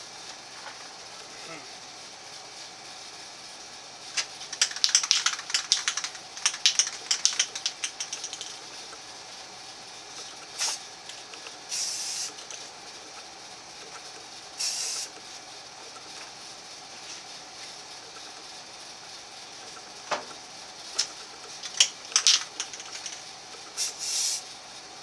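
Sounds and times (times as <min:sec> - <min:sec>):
spray can ball rattling: 0:04.2 - 0:09.0, 0:10.1 - 0:12.7, 0:14.6 - 0:15.1, 0:20.9 - 0:24.4
spray paint hissing: 0:04.3 - 0:09.0, 0:10.1 - 0:13.2, 0:14.0 - 0:16.2, 0:20.8 - 0:24.5.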